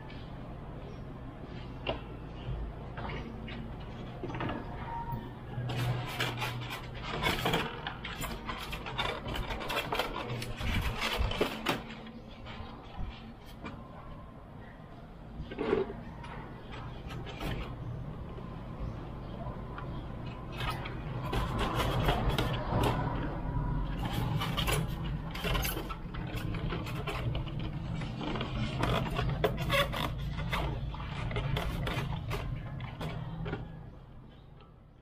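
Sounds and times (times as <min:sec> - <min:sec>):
plastic clicks knocks and scrapes: 0:05.6 - 0:13.9, 0:15.4 - 0:34.8.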